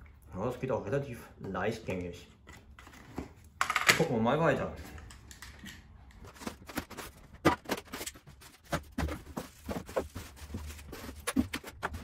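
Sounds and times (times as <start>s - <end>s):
plastic wrapping crinkling: 6.3s - 12.0s.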